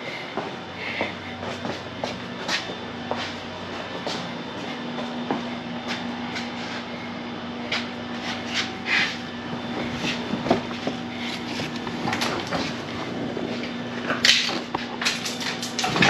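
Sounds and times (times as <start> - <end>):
steady hum: 0.0 - 16.0
carpet rustling and scraping: 7.6 - 16.0.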